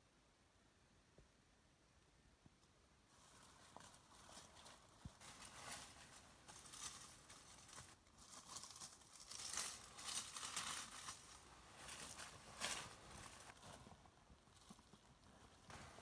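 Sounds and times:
dry leaves and twigs rustling: 0:03.1 - 0:16.0.

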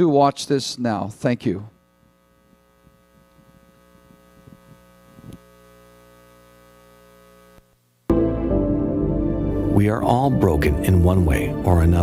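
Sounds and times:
faint electrical mains hum: 0:00.0 - 0:08.1.

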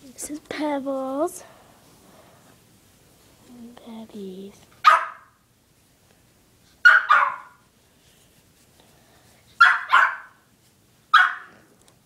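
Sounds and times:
dog barking: 0:04.8 - 0:05.4, 0:06.8 - 0:07.6, 0:09.6 - 0:10.4, 0:11.1 - 0:11.6.

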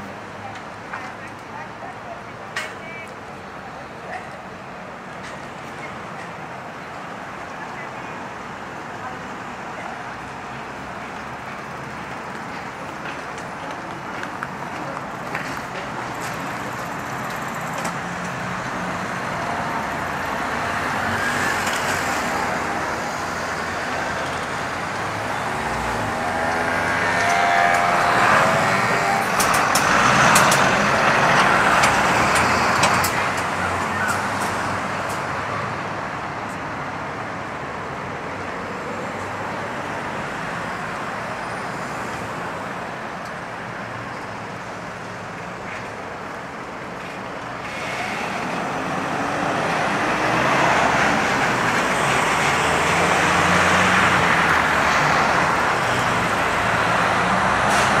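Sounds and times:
cars passing: 0:00.0 - 0:58.0
city traffic hum: 0:00.0 - 0:58.0.

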